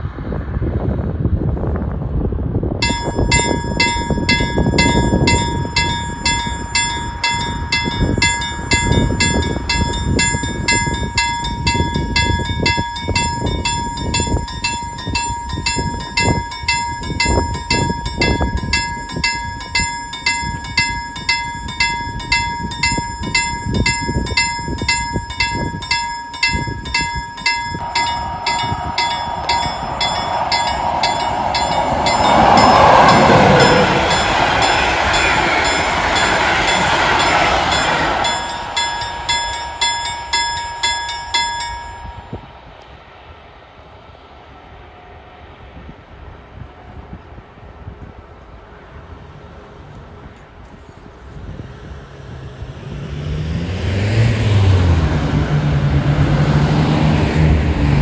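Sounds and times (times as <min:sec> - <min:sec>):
train approaching: 0:02.7 - 0:58.0
level crossing bell ringing: 0:02.8 - 0:42.5.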